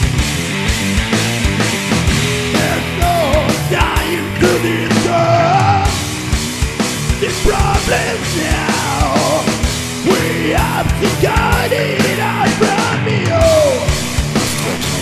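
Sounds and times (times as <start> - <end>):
drums: 0.0 - 15.0
loud rock music: 0.0 - 15.0
person singing: 2.6 - 6.0, 7.2 - 14.0.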